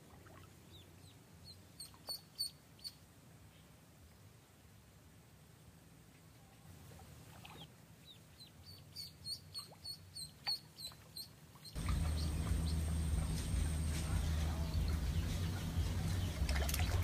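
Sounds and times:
duckling peeping: 0.7 - 3.0, 7.5 - 17.0
loud steady background noise: 11.8 - 17.0.

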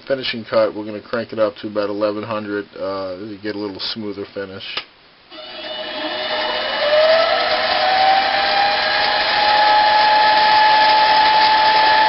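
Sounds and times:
metal lathe motor whine: 5.3 - 12.0.

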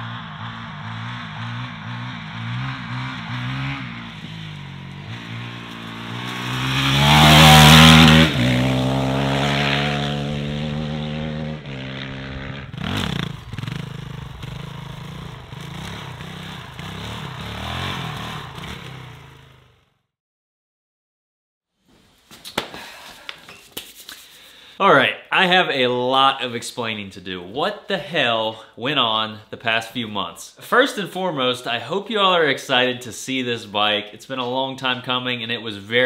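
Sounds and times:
dirt bike engine revving: 0.0 - 19.9.

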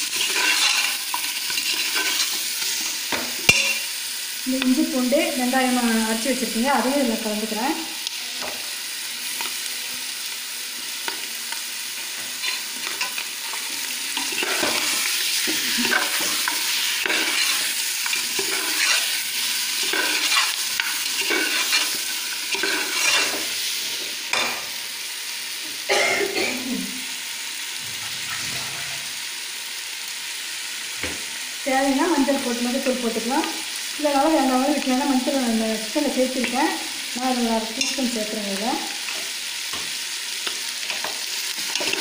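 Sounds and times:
metal ladle scraping a pot: 0.0 - 2.9, 12.3 - 19.2, 19.8 - 23.5
food sizzling in a pot: 0.0 - 42.0.

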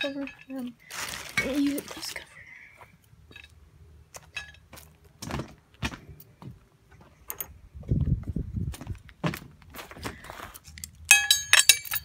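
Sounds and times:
clicks and metal clinks: 10.6 - 12.0.

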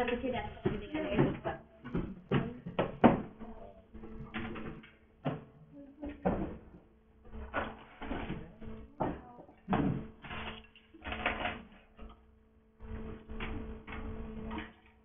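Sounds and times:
low voices: 0.0 - 4.8, 7.4 - 9.8
furniture knocks and clatter: 0.0 - 11.7
electrical hum: 0.0 - 15.0.

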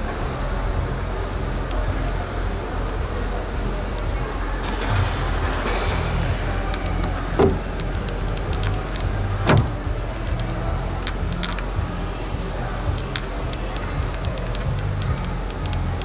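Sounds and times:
low hum: 0.0 - 16.0
short dull thump: 6.9 - 7.7, 9.3 - 9.9
faint ticks: 13.0 - 16.0.

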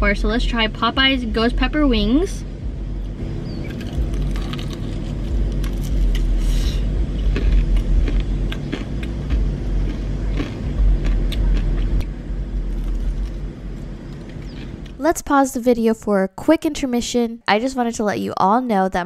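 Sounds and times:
low rumble inside a car: 0.0 - 15.0
crunching and chewing fried skin: 3.6 - 15.0.

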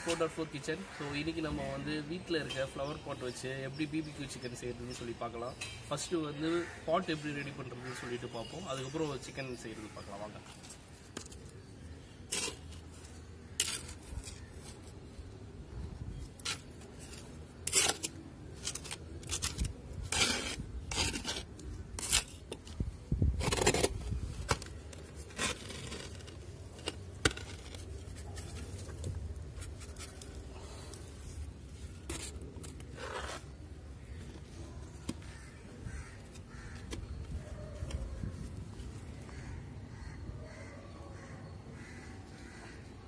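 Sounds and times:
soil scraping and rustling: 10.2 - 15.4, 16.1 - 39.1.

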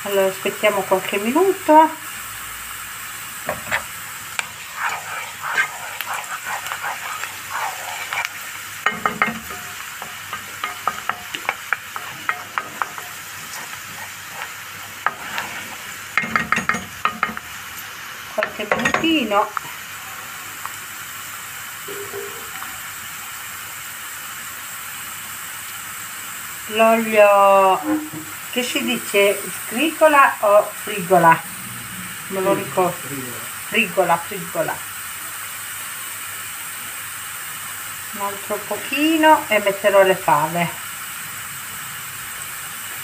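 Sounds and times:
vegetables sizzling in oil: 0.0 - 43.0
wooden spoon scraping pan: 3.4 - 17.4.

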